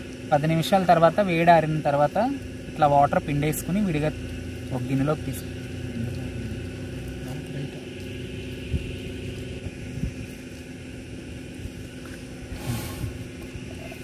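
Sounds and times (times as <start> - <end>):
low machine hum: 0.0 - 14.0
burst of hiss: 12.5 - 13.4.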